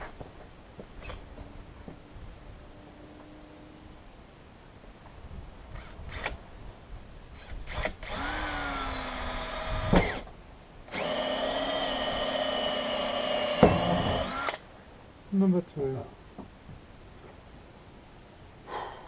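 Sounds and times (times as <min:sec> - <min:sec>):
cordless drill whining: 0:07.4 - 0:10.3, 0:10.9 - 0:14.6.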